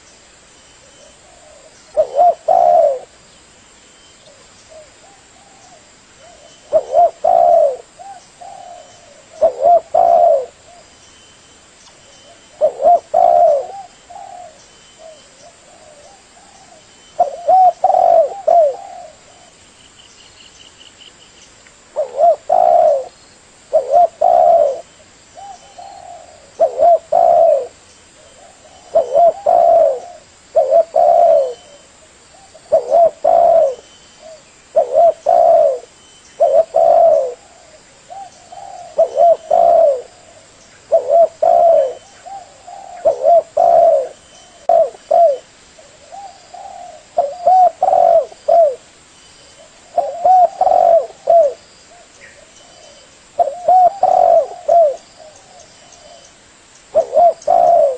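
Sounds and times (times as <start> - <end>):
dove cooing: 0.9 - 3.2, 4.3 - 10.9, 12.2 - 19.6, 21.9 - 48.9, 49.6 - 56.3, 56.9 - 57.9.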